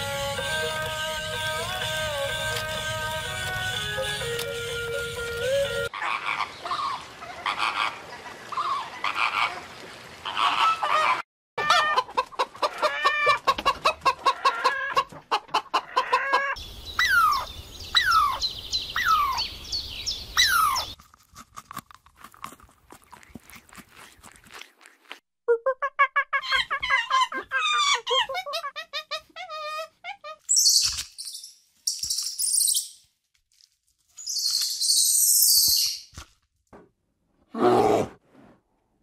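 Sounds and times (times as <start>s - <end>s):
falling poultry cries: 10.3s - 18.4s
chickens clucking: 10.4s - 16.6s
rapid repeated poultry calls: 10.4s - 18.4s.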